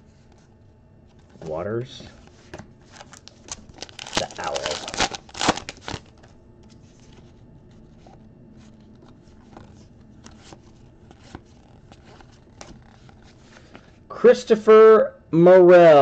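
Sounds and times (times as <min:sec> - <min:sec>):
card pack wrapper tearing open: 0:02.9 - 0:06.2.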